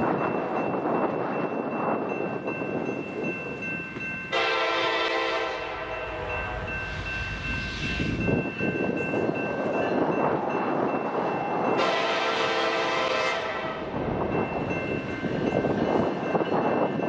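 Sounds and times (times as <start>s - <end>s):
freight train rumbling: 0.0s - 17.0s
locomotive air horn blast: 4.3s - 6.3s, 11.8s - 13.8s.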